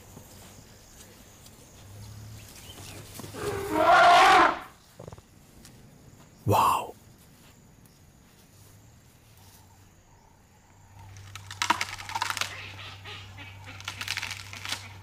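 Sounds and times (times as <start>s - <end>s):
grass crackling and rustling: 11.0s - 12.5s, 13.7s - 15.0s.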